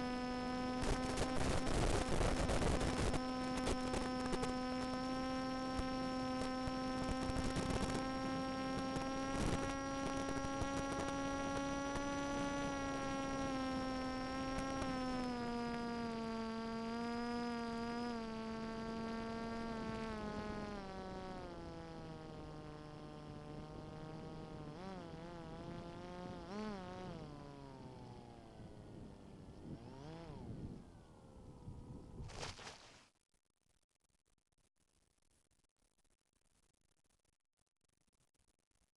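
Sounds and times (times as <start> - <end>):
electric motor and propeller whine: 0.0 - 33.0.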